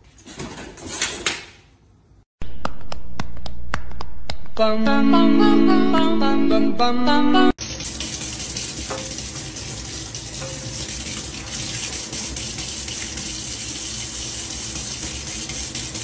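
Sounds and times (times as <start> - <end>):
brief music: 2.4 - 7.6.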